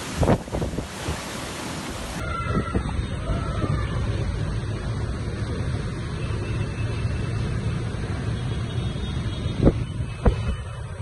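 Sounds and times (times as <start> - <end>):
wind buffeting microphone: 0.0 - 3.8.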